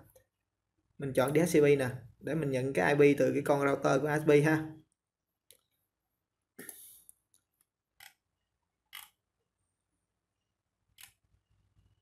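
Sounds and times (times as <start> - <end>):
computer mouse clicks: 8.9 - 9.2, 11.0 - 11.2.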